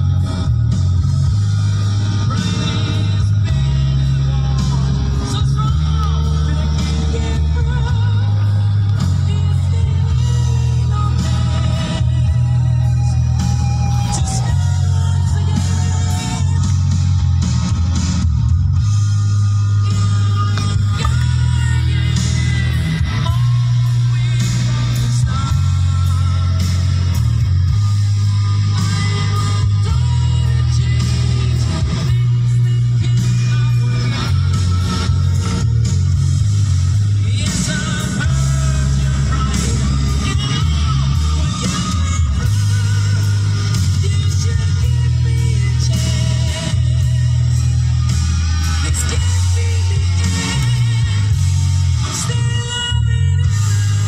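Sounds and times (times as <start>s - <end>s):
guitar: 0.0s - 54.0s
heavy bass line: 0.0s - 54.0s
rock music: 0.0s - 54.0s.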